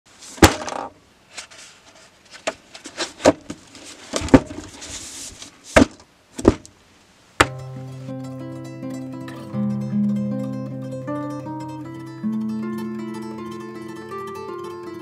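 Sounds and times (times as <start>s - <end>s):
paper sliding: 2.8s - 5.8s
acoustic guitar music: 7.4s - 15.0s.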